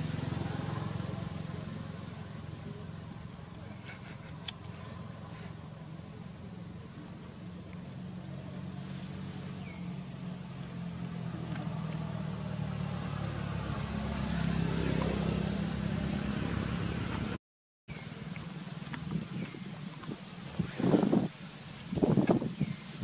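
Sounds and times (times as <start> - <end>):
vehicle engine running: 0.0 - 17.4.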